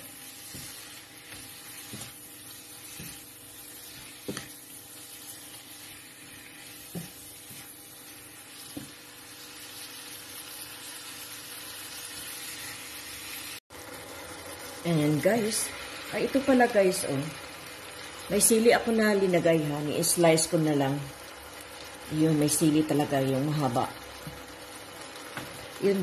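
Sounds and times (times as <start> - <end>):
meat sizzling in a pan: 0.0 - 26.0.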